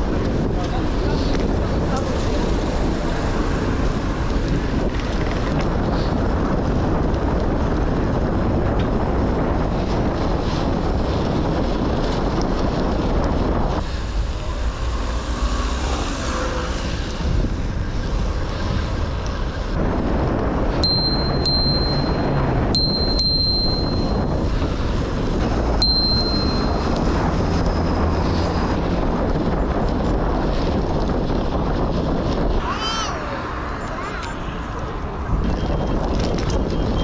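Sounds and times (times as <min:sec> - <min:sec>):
city traffic noise: 0:00.0 - 0:37.0
wind buffeting microphone: 0:00.0 - 0:37.0
high bell ring: 0:20.8 - 0:24.4, 0:25.8 - 0:27.2.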